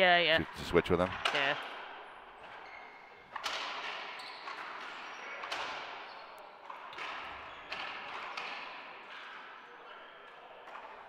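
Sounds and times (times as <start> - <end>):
racquet hitting ball: 1.0 - 9.5.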